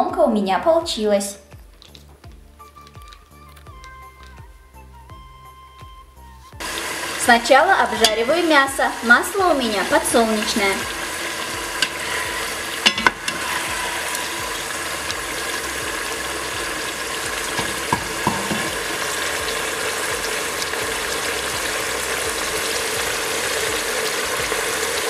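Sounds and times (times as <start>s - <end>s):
beef sizzling in oil: 6.6s - 25.0s.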